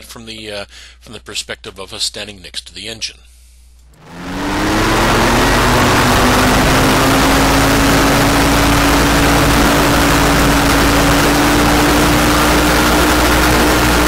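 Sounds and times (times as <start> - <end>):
two-stroke engine running: 3.9 - 14.0.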